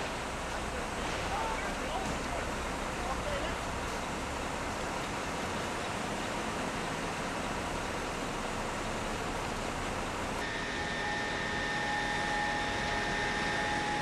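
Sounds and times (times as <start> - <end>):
engine and machinery rumble: 0.0 - 14.0
steady high whine: 10.0 - 14.0
lower steady tone: 10.4 - 14.0.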